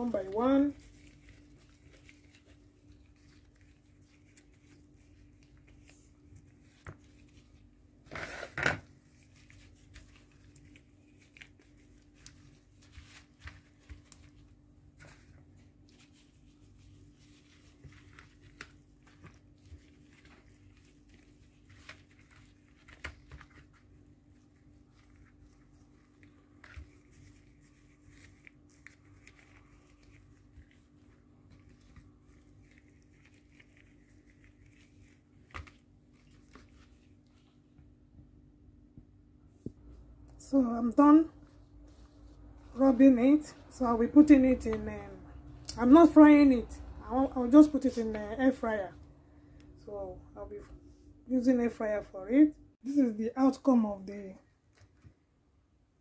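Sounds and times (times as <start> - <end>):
gloved hand rustling: 0.0 - 37.9, 41.0 - 45.0.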